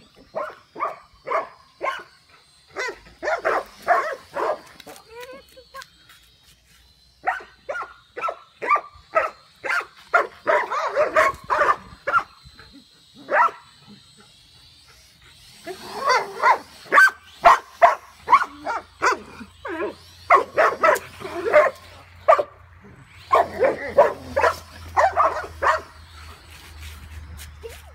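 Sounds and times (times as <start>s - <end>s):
drone propellers whining: 0.0s - 27.9s
dogs barking: 0.3s - 4.7s, 7.2s - 12.3s, 13.3s - 13.8s, 15.8s - 19.4s, 20.3s - 22.6s, 23.3s - 26.0s.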